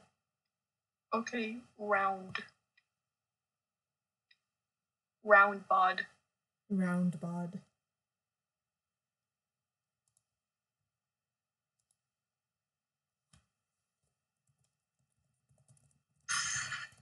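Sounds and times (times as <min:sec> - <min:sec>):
computer mouse clicks: 0:10.0 - 0:10.3, 0:11.8 - 0:12.0, 0:13.3 - 0:13.5, 0:14.4 - 0:17.0
soft keyboard typing: 0:10.0 - 0:10.3, 0:11.8 - 0:12.0, 0:13.2 - 0:17.0.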